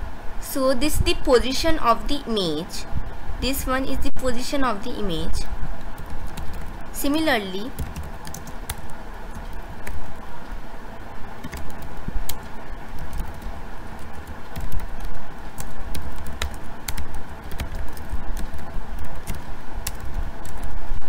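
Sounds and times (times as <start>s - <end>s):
low background rumble: 0.0s - 21.0s.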